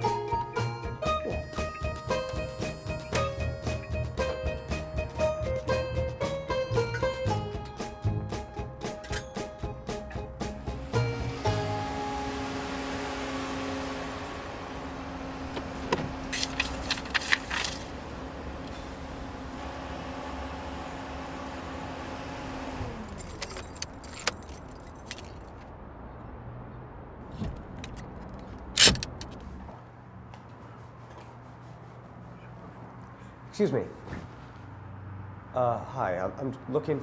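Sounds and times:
car engine running: 0:10.4 - 0:24.2
keys jangling: 0:23.0 - 0:25.6.

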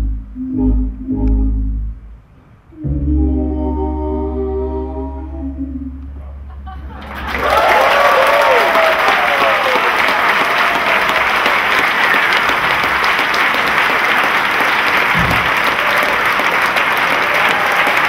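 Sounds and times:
large audience applauding: 0:06.9 - 0:18.0
low thump: 0:15.2 - 0:15.5.

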